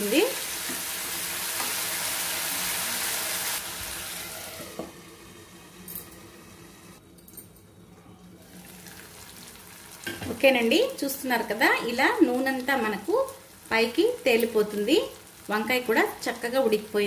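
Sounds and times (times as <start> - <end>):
curry sizzling in oil: 0.0 - 7.0, 8.4 - 17.0.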